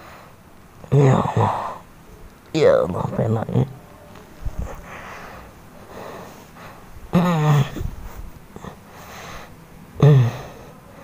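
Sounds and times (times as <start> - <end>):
man groaning: 0.9 - 1.8, 7.1 - 7.9, 10.0 - 10.6
man breathing: 4.5 - 7.0, 7.6 - 9.6.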